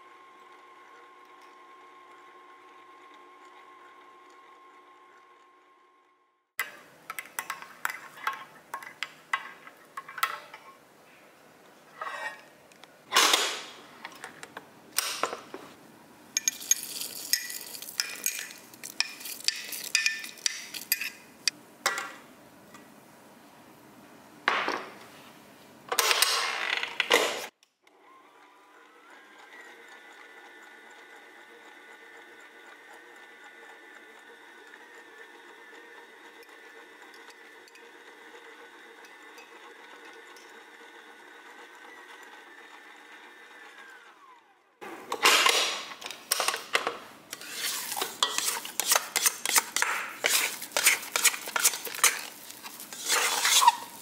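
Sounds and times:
stand mixer running: 0:00.0 - 0:06.2, 0:27.9 - 0:44.7.

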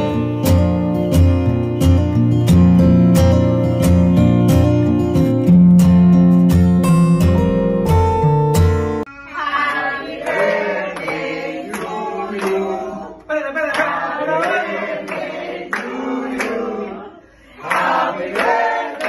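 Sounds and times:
group of people singing: 0:09.2 - 0:19.0
people clapping in time: 0:09.7 - 0:17.0, 0:17.6 - 0:19.0.

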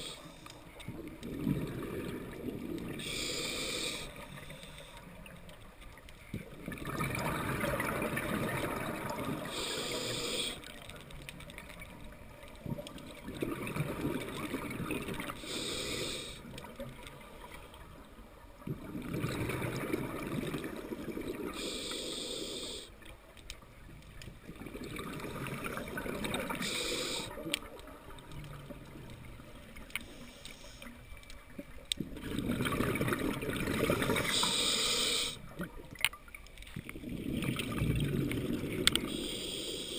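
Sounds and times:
gurgling exhaled bubbles: 0:00.9 - 0:03.1, 0:06.4 - 0:10.6, 0:12.6 - 0:17.6, 0:18.6 - 0:21.6, 0:24.3 - 0:29.8, 0:32.0 - 0:34.5, 0:36.8 - 0:39.2
regulator air hiss: 0:03.0 - 0:05.0, 0:09.5 - 0:10.7, 0:15.4 - 0:16.5, 0:21.5 - 0:22.9, 0:26.5 - 0:27.3, 0:34.2 - 0:35.4, 0:39.1 - 0:39.9.

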